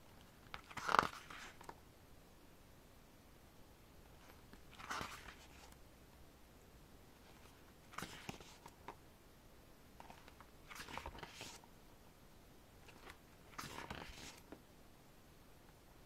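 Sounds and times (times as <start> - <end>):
paper pages rustling: 0.2 - 1.8, 4.2 - 5.8, 7.2 - 9.0, 10.0 - 11.6, 12.8 - 14.6.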